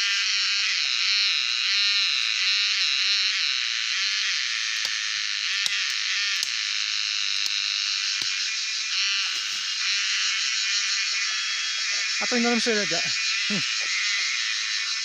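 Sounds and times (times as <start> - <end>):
cicadas buzzing: 0.0 - 15.0.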